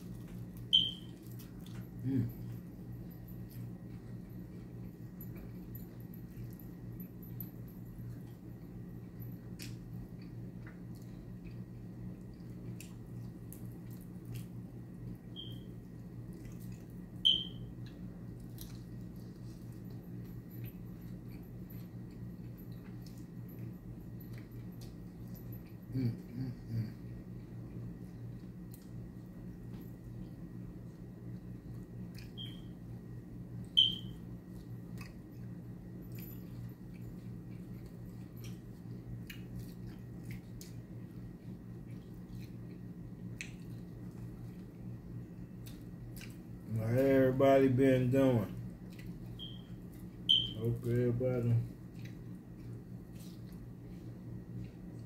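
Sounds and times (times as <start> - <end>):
steady low hum: 0.0 - 55.0
chewing: 16.2 - 17.0, 17.8 - 26.4, 34.5 - 44.7, 45.6 - 46.6, 48.6 - 50.2, 51.6 - 55.0
lip smacks and clicks: 43.3 - 43.9
wet eating sounds: 51.6 - 55.0.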